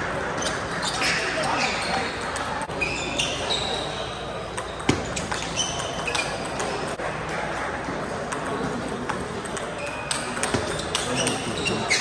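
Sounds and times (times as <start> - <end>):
shoes squeaking on floor: 0.3 - 6.9, 9.7 - 12.0
table tennis ball clicking: 8.3 - 11.5.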